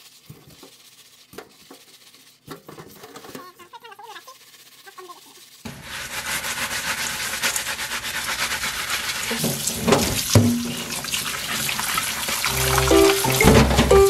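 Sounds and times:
tap water splashing into steel bowl: 9.3s - 14.0s
music: 12.5s - 14.0s.

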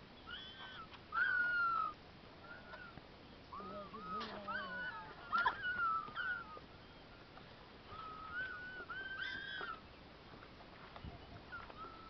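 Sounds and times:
high whistle-like animal calls: 0.2s - 7.1s, 7.9s - 9.8s, 11.4s - 12.0s.

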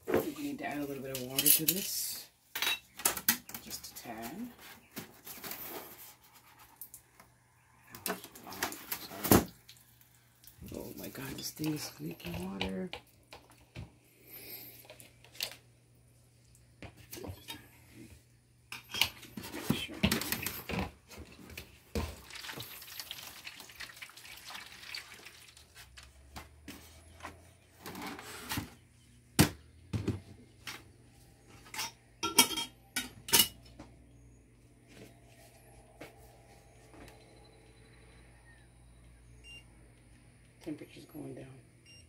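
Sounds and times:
water pouring: 21.9s - 26.2s
glass cup clinking: 31.8s - 33.6s.

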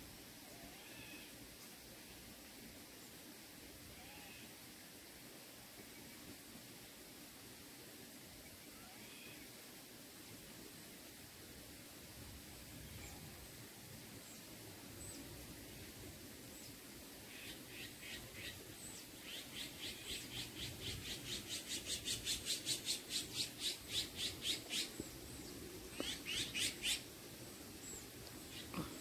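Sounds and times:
faint distant bird calls: 14.2s - 29.0s
bird chirping: 17.4s - 27.1s.

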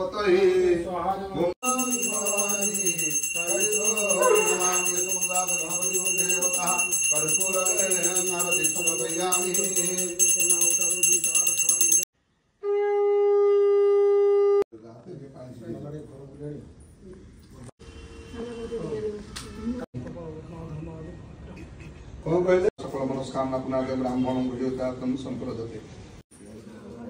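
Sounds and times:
voices chanting: 1.6s - 12.0s
hand bell ringing: 1.6s - 12.1s
conch shell blowing: 12.6s - 14.6s.

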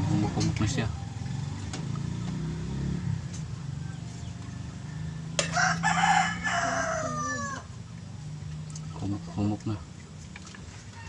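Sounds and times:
rooster crowing: 2.9s - 7.7s.

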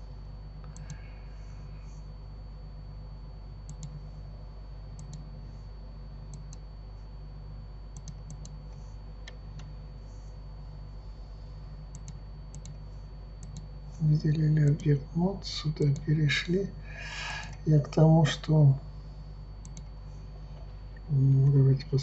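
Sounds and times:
low electrical hum: 0.0s - 22.0s
computer mouse clicks: 0.6s - 1.0s, 3.6s - 4.0s, 4.9s - 5.3s, 6.3s - 6.6s, 7.9s - 8.6s, 11.9s - 12.8s, 13.4s - 13.7s, 14.6s - 14.9s, 19.6s - 20.0s.

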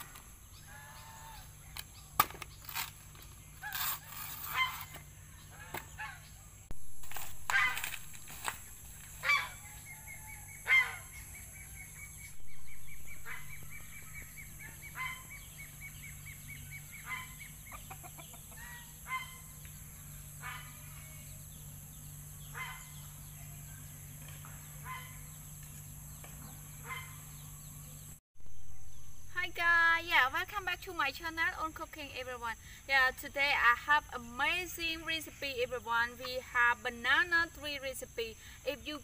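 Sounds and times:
poultry calling: 0.5s - 1.7s, 13.1s - 19.6s.

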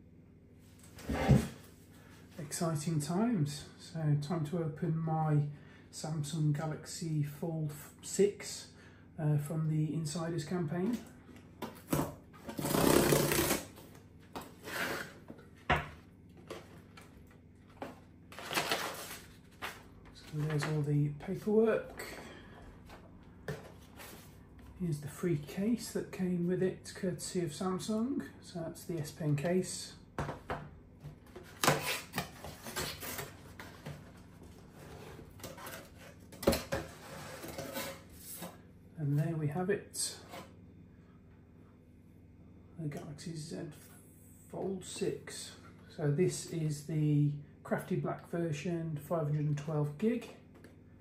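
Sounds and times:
cardboard scraping: 1.0s - 1.7s, 12.4s - 13.8s, 31.3s - 38.6s
cardboard rubbing and scraping: 12.4s - 13.8s.

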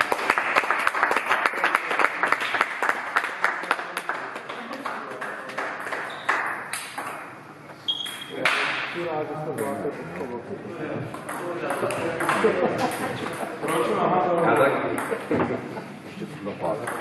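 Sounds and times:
people clapping: 0.0s - 7.0s.

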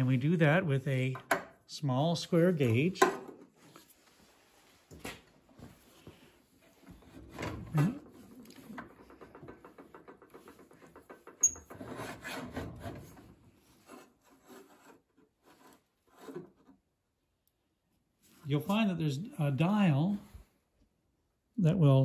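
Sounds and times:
saw mechanism scraping and knocking: 8.0s - 16.8s.

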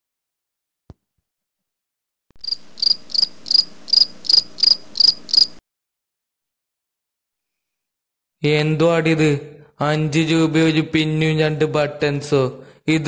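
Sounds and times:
cricket chirping: 2.4s - 5.6s.

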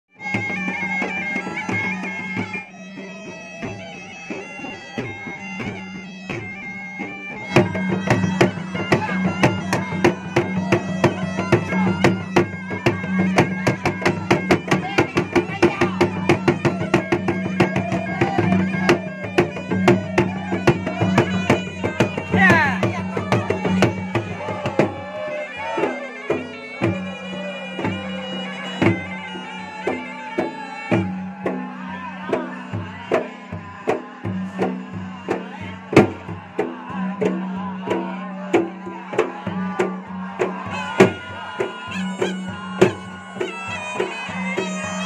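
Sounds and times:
reedy pipe wailing melody: 0.1s - 45.0s.

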